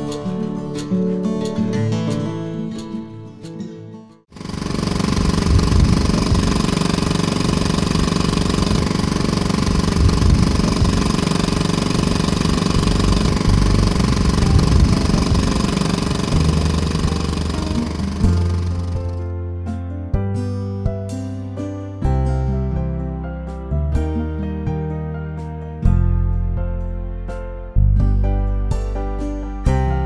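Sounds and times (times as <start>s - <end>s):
outboard motor running: 4.4s - 19.3s.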